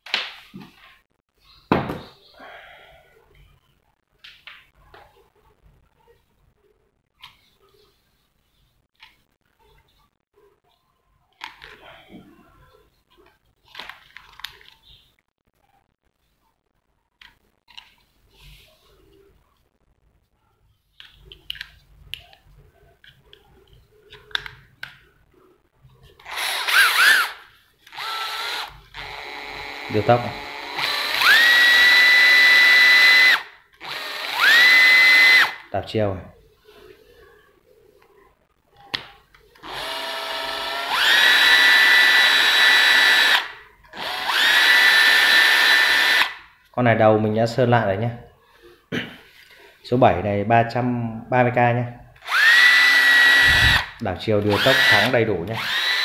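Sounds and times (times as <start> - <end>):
drill motor whine: 26.2 - 35.6, 39.6 - 46.3, 52.2 - 53.9, 54.5 - 56.0.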